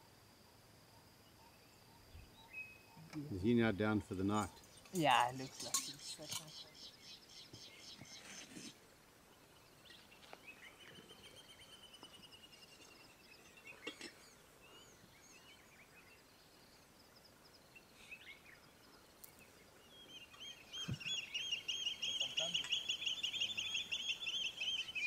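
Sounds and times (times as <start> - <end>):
faint birds chirping: 0.0 - 25.0
bird trilling: 20.2 - 25.0.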